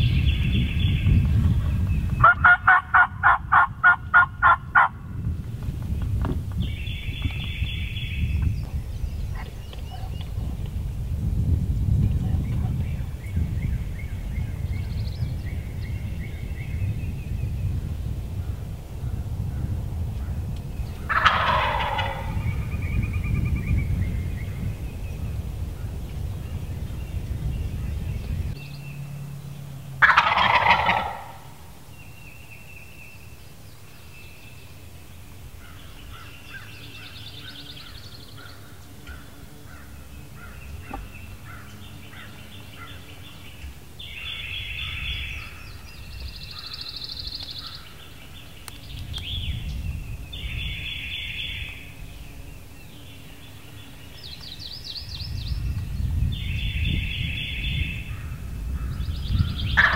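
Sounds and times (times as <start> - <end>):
songbirds twittering: 0.0 - 59.9
turkey gobbling: 2.2 - 5.0, 21.1 - 22.4, 30.0 - 31.6.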